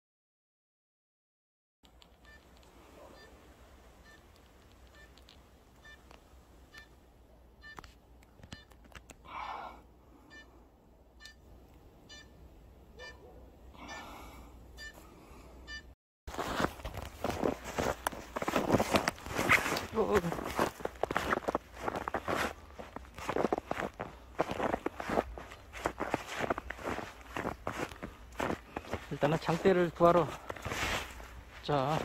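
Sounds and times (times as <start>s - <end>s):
short electronic beeps: 3.1s - 3.4s, 4.9s - 5.2s, 6.7s - 7.0s, 7.6s - 7.8s, 10.3s - 10.6s, 11.2s - 11.5s, 12.1s - 12.4s, 13.0s - 13.2s, 14.8s - 15.0s, 15.7s - 16.0s.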